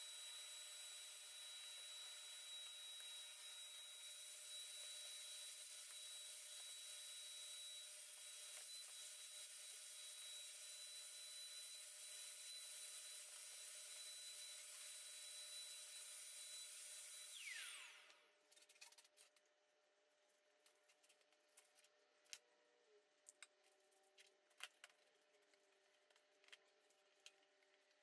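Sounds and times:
vacuum cleaner running: 0:00.0 - 0:18.3.

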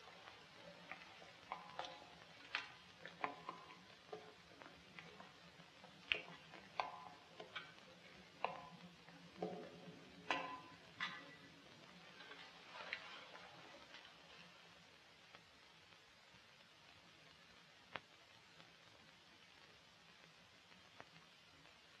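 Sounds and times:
faint clicks and knocks: 0:00.0 - 0:14.7, 0:17.8 - 0:18.8.

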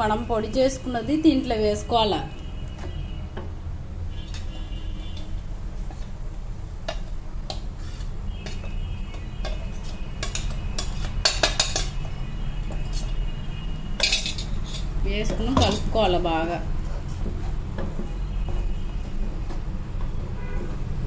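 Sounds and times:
kitchen utensils clinking: 0:09.4 - 0:12.0, 0:14.0 - 0:16.2.

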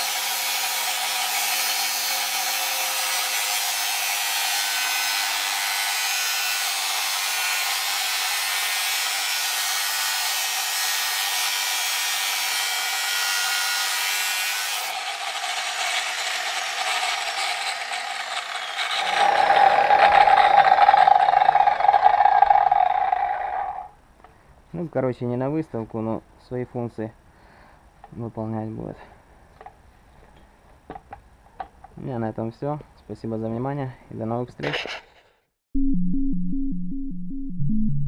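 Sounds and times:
angle grinder cutting metal: 0:00.0 - 0:23.9
grinder whining with no load: 0:14.6 - 0:23.9.

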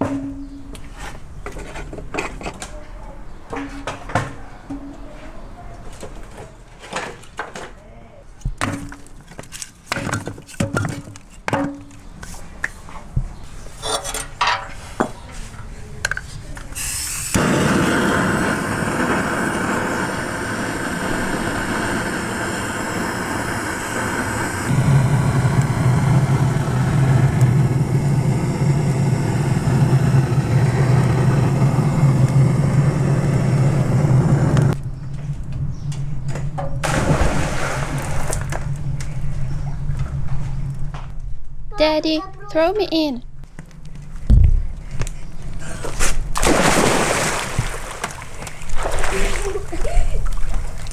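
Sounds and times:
firewood clunking and clattering: 0:06.0 - 0:07.8, 0:08.5 - 0:12.0
gas torch hissing: 0:16.8 - 0:34.8
deep hum: 0:17.4 - 0:41.7.

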